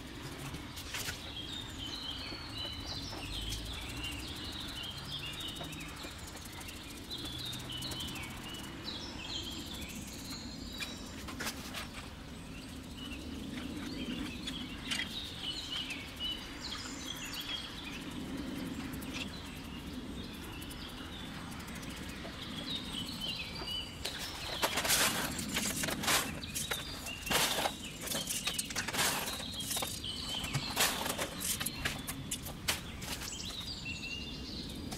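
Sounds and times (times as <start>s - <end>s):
small birds chirping: 0.0s - 34.9s
clay pebbles rattling into planter: 24.1s - 33.6s.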